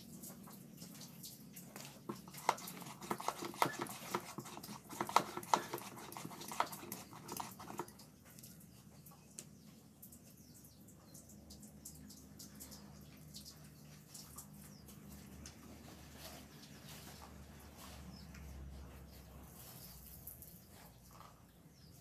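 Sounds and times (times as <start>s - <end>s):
cattle hooves clicking and knocking: 0.2s - 10.6s.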